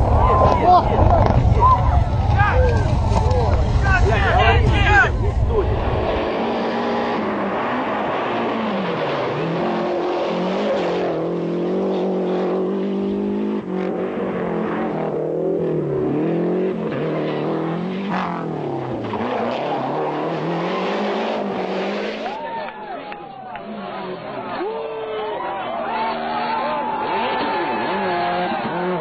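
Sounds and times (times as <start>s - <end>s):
rally car engine at full throttle: 0.0s - 29.0s.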